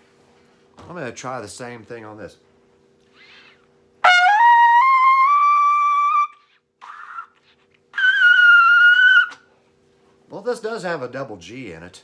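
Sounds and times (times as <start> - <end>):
cornet playing high notes: 4.0 - 6.4.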